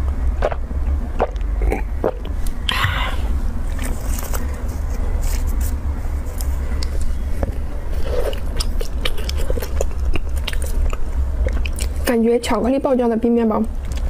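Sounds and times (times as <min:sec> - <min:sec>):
steady low hum: 0:00.0 - 0:14.0
biting and chewing: 0:00.3 - 0:02.6, 0:07.9 - 0:12.0.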